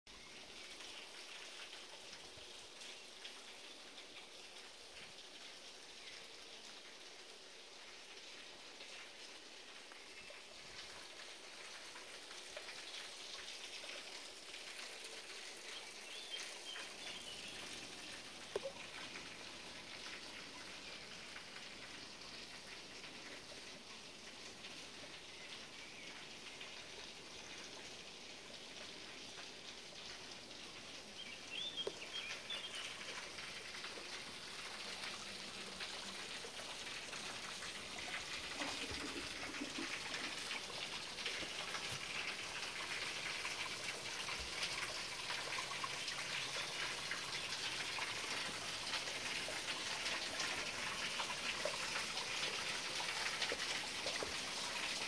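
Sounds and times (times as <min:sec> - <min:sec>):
brook trickling and splashing: 0:00.1 - 0:55.0.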